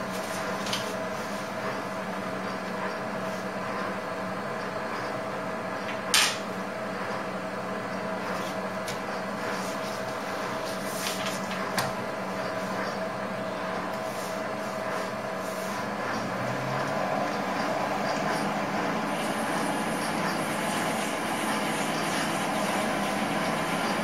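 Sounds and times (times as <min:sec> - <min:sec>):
steady machine hum: 0:00.0 - 0:24.0
paper rustling: 0:10.6 - 0:11.6.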